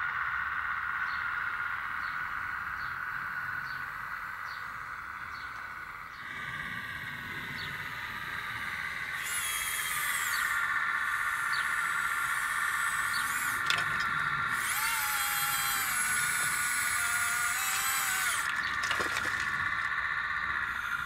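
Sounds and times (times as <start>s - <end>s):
electric motor whining: 6.2s - 21.0s.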